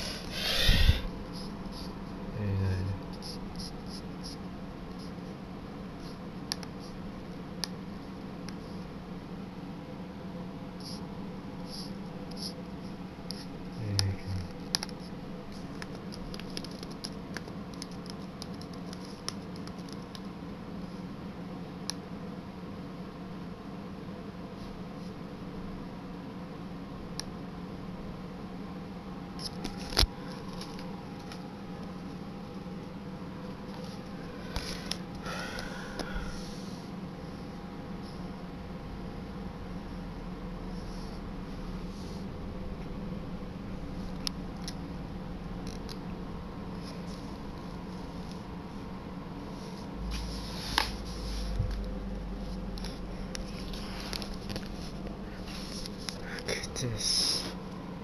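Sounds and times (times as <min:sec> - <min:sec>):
laptop clicks: 0:14.7 - 0:15.0, 0:15.7 - 0:20.3.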